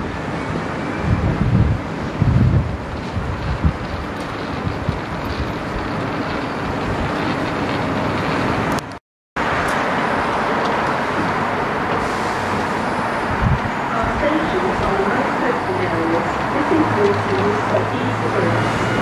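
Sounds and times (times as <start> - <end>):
electric train rumble and hiss: 9.4 - 19.0.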